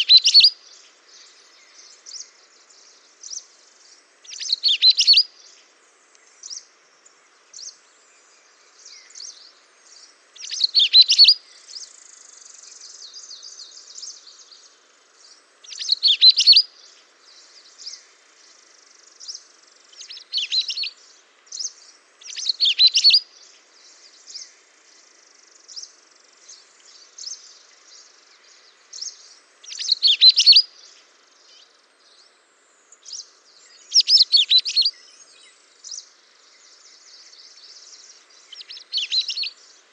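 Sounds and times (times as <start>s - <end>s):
high bird chirps: 0.0s - 0.6s, 4.3s - 5.3s, 10.4s - 11.4s, 15.7s - 16.6s, 22.3s - 23.2s, 29.0s - 30.7s, 33.9s - 35.0s, 38.4s - 39.6s
songbirds warbling: 0.0s - 39.9s.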